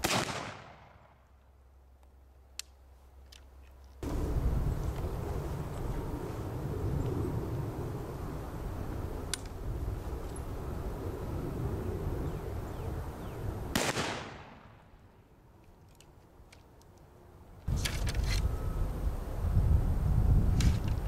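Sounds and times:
rifle shot: 0:00.0 - 0:01.2, 0:13.7 - 0:14.9.

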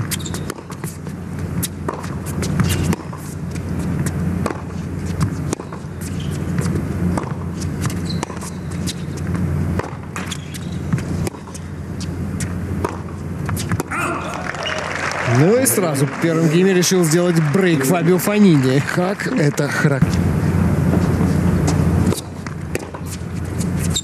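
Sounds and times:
tennis ball bouncing: 0:00.0 - 0:14.0, 0:20.0 - 0:24.0
racket hitting tennis ball: 0:00.0 - 0:14.1, 0:20.8 - 0:23.9
low hum of arena noise: 0:00.0 - 0:24.0.

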